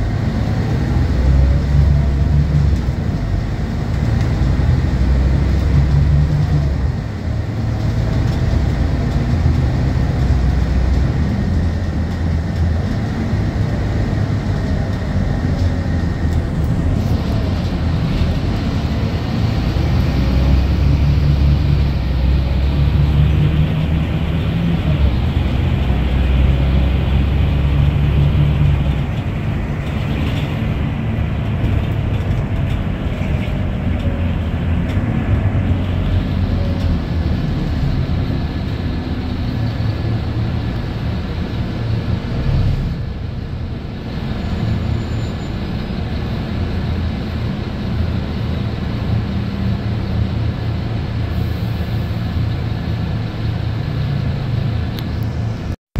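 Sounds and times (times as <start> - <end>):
bus diesel engine running: 0.0 - 55.8
road noise: 0.0 - 55.8.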